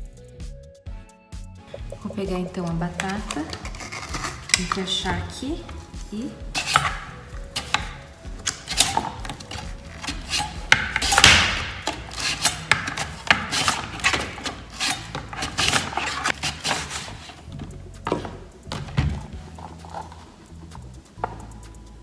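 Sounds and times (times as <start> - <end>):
potato scraping on mandoline slicer: 2.9 - 17.5
slicer knocking: 6.5 - 17.3.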